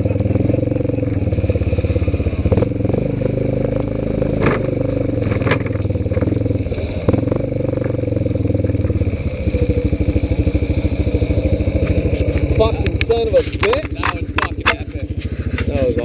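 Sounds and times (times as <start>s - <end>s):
atv engine running: 0.0s - 16.0s
sharp knocks and scrapes: 4.4s - 6.5s, 11.8s - 16.0s.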